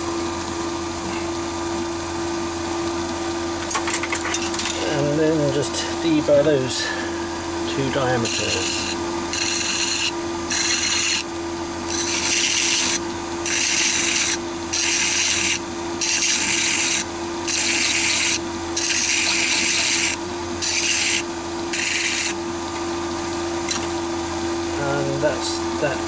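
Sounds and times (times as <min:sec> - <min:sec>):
lathe humming: 0:04.4 - 0:25.2
file rasping on metal: 0:08.2 - 0:11.3, 0:11.9 - 0:22.4.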